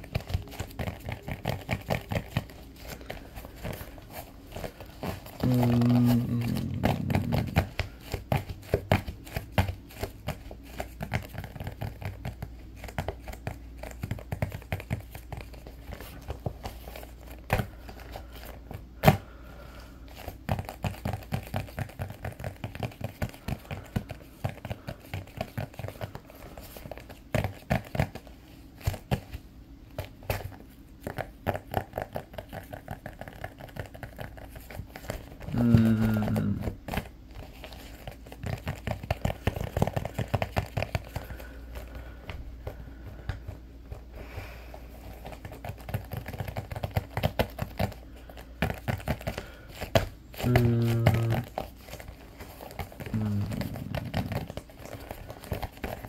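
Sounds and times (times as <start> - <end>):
short hummed voice: 5.3 - 7.7, 35.5 - 36.8, 50.4 - 51.6, 53.0 - 54.5.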